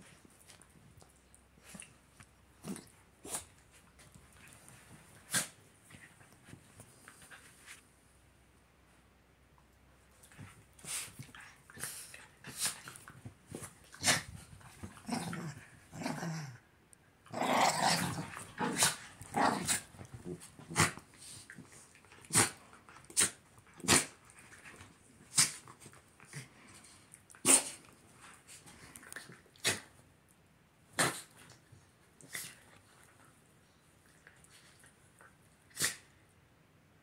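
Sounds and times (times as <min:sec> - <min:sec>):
small dogs growling: 0:13.9 - 0:16.6, 0:17.3 - 0:21.0.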